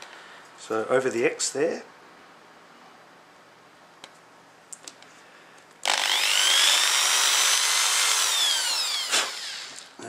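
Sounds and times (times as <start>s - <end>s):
electric drill whining: 5.8s - 10.0s.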